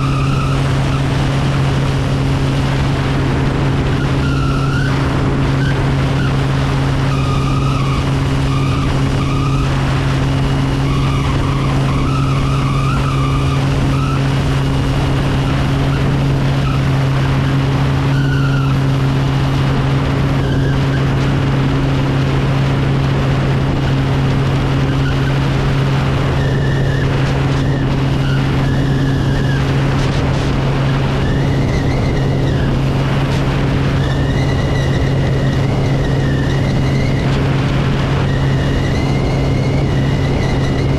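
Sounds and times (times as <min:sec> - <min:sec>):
faint wavering whistles: 0:00.0 - 0:01.6, 0:03.9 - 0:19.2, 0:24.7 - 0:25.5, 0:38.0 - 0:40.9
propeller low drone: 0:00.0 - 0:40.9.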